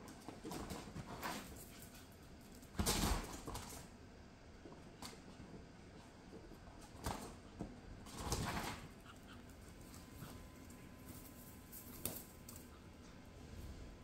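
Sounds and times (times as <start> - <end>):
dog scuffling: 4.8 - 13.3.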